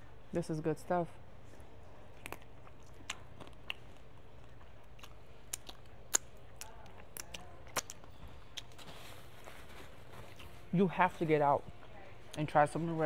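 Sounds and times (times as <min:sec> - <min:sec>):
low steady hum: 0:00.0 - 0:13.0
chewing clicks and smacks: 0:02.0 - 0:08.8
fingers pulling apart shrimp: 0:02.2 - 0:08.8.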